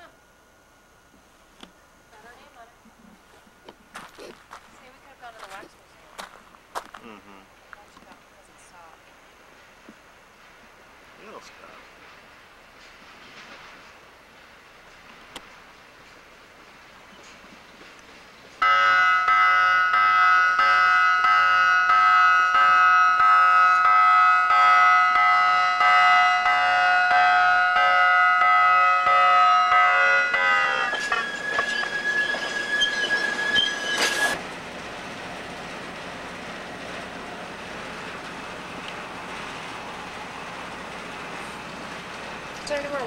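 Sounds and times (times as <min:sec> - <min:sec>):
wheels clicking on rail joints: 0:12.0 - 0:27.6, 0:28.4 - 0:43.0
railcar air horn chord: 0:18.6 - 0:31.3
high wheel squeal: 0:29.9 - 0:34.4.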